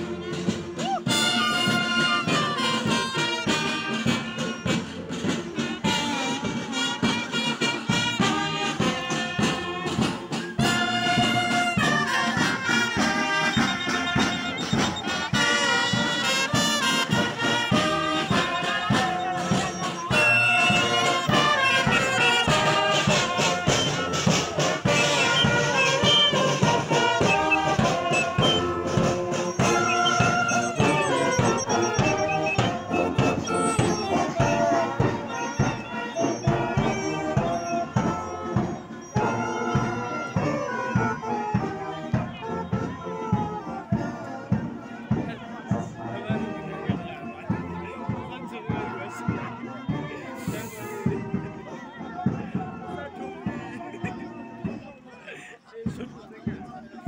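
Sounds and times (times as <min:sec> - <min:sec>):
steady drum beat: 0:00.0 - 0:54.8
saxophones and tubas: 0:00.0 - 0:56.0.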